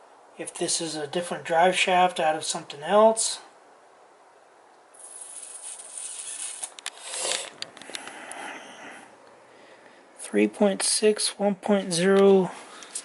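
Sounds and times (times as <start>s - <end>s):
wind gust hissing: 1.8s - 10.2s.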